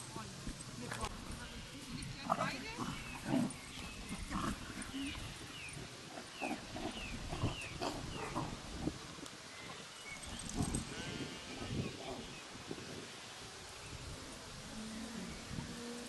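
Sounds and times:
puppies growling and grunting: 2.4s - 9.0s.

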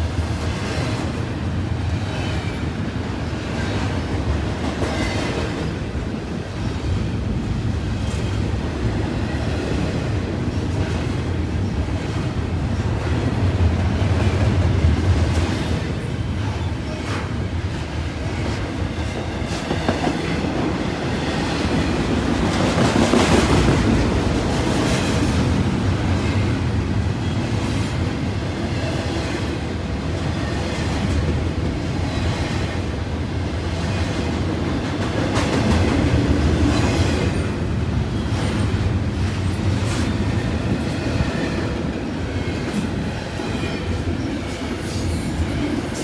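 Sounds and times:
freight train wheels rumbling on rails: 0.0s - 46.0s.

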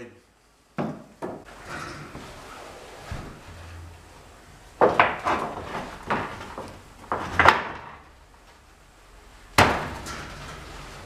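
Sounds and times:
wooden bed parts knocking: 0.8s - 2.2s, 4.8s - 8.1s, 9.6s - 10.6s.

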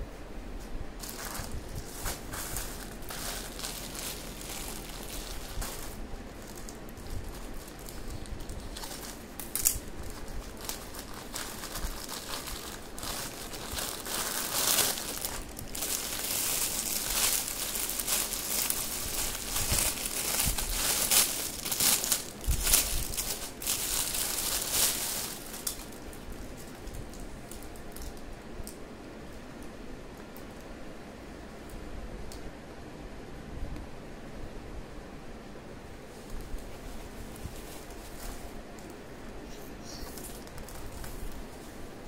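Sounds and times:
plastic packaging crinkling: 1.0s - 28.3s, 36.2s - 39.0s, 40.0s - 41.6s.

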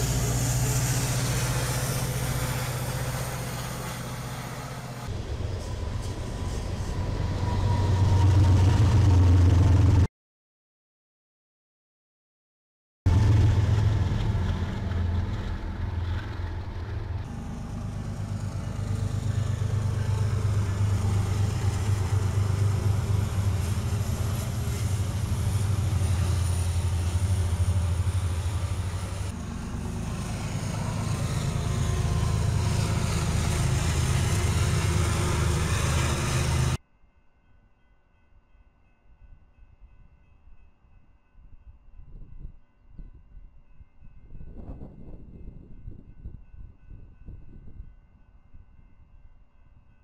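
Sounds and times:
diesel locomotive engine drone: 0.0s - 10.1s, 13.1s - 36.8s.

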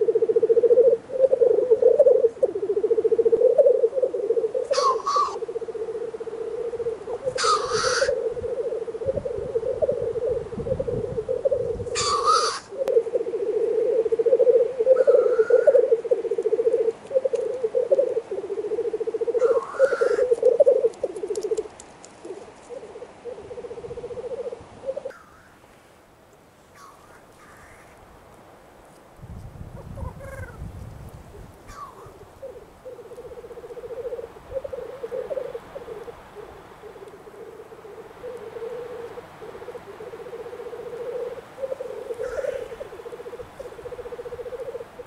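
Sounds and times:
grouse sneezing hiss calls: 0.0s - 9.0s, 11.9s - 21.6s, 26.7s - 28.0s, 31.6s - 45.0s
grouse bubbling cooing murmur: 0.0s - 25.3s, 29.8s - 30.7s, 31.3s - 45.0s.

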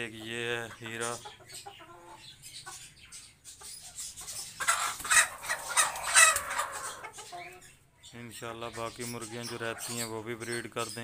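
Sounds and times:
hens and roosters clucking: 0.0s - 11.0s
harsh scratchy flock noise: 4.0s - 7.3s.

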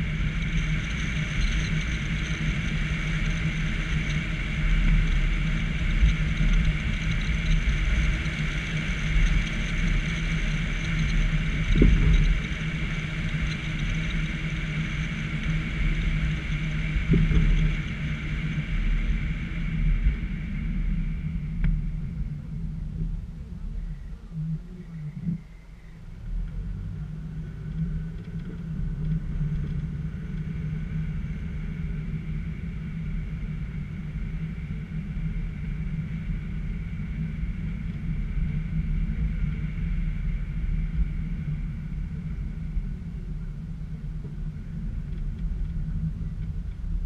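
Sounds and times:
car engine and road rumble: 0.0s - 47.0s
faint high whine: 0.0s - 47.0s.

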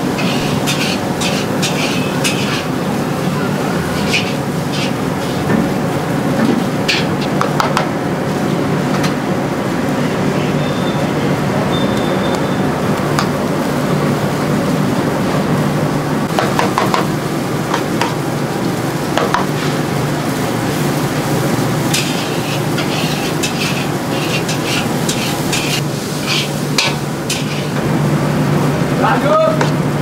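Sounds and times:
batter scraping on griddle: 0.0s - 2.8s, 3.8s - 5.5s, 6.9s - 7.3s, 21.8s - 27.8s.

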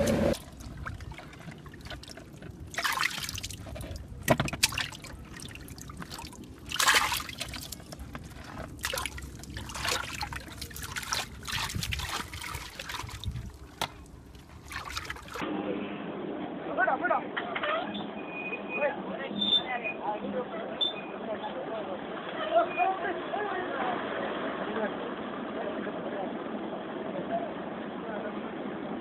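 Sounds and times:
water trickling: 0.0s - 15.4s
wet mud splashing: 0.2s - 15.4s.

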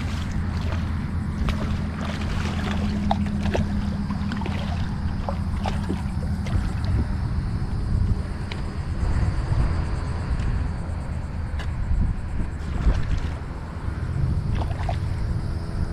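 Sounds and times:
fish splashing at the surface: 0.0s - 7.0s, 12.6s - 13.5s, 14.5s - 15.1s
steady low rumble: 0.0s - 15.9s.

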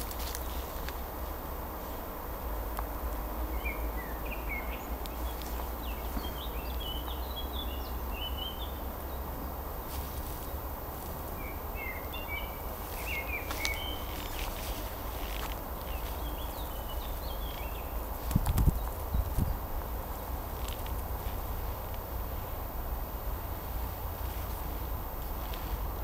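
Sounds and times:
songbirds chirping: 0.0s - 26.0s.

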